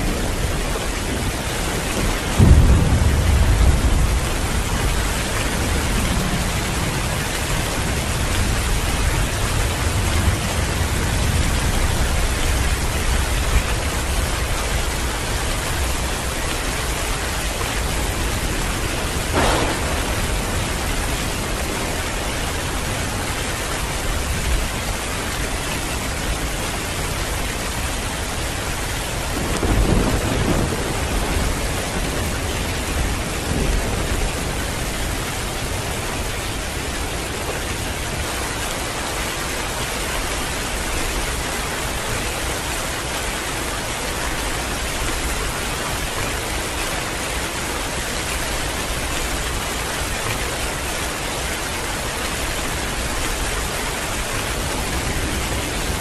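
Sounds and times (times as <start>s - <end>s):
thunder rumbling: 0.0s - 38.3s, 52.3s - 56.0s
heavy rain pouring: 0.0s - 56.0s
sharp crack: 19.3s - 22.2s.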